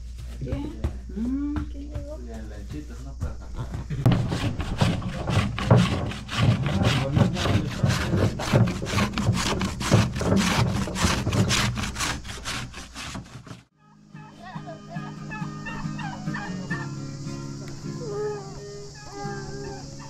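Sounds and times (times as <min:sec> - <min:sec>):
rhythmic rasping strokes: 0:00.0 - 0:20.0.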